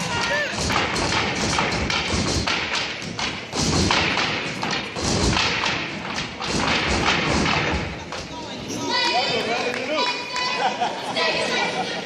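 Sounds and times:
sticks striking stage floor: 0.0 - 8.4.

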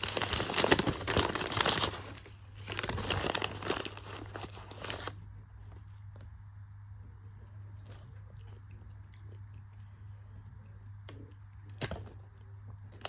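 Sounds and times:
paper bag crinkling: 0.0 - 5.2
steady low hum: 0.0 - 13.0.

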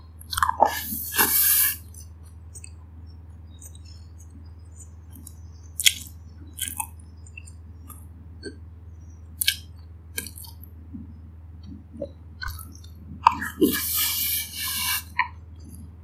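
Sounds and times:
hissing through pursed lips: 0.7 - 1.9, 13.4 - 15.2
chewing with wet clicks: 1.9 - 2.8, 3.5 - 8.6, 9.3 - 13.8.

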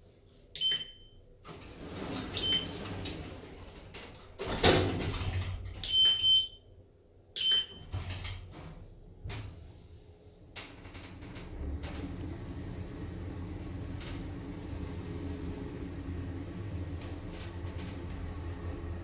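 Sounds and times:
keypad beeps: 0.6 - 1.2, 5.8 - 6.6, 7.4 - 7.9
sliding doors closing with thud: 1.4 - 6.2, 7.7 - 19.0.

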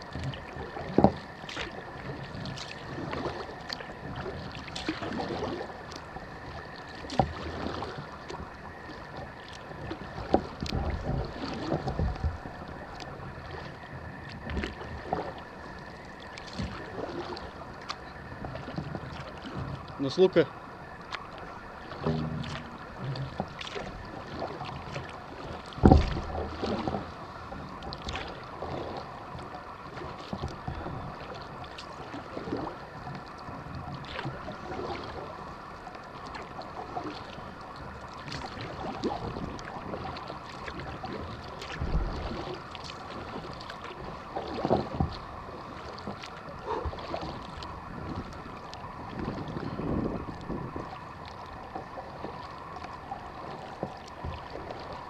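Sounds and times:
paddle splashes and drips: 0.0 - 55.0
paddle thump: 21.9 - 23.9, 25.8 - 26.9.

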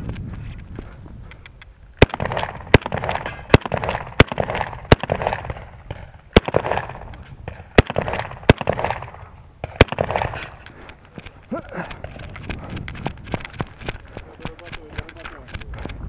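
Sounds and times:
shotgun shots with echo: 2.0 - 10.6.

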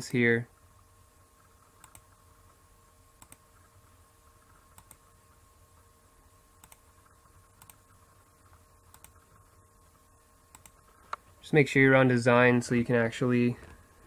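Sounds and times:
faint mouse clicks: 1.8 - 2.1, 3.2 - 3.4, 4.5 - 5.0, 6.6 - 6.9, 7.5 - 7.9, 8.9 - 9.2, 10.5 - 11.2.

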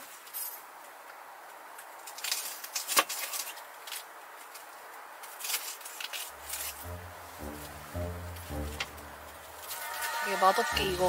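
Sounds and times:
cabbage leaves crackling and snapping: 1.8 - 6.7.

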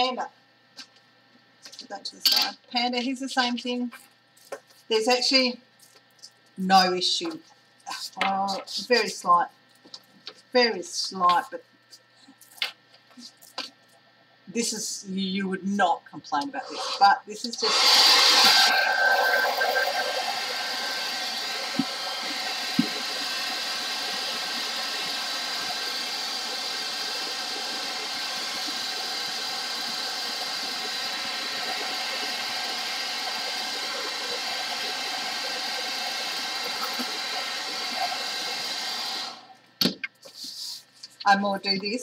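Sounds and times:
hairdryer blowing: 16.6 - 39.5.

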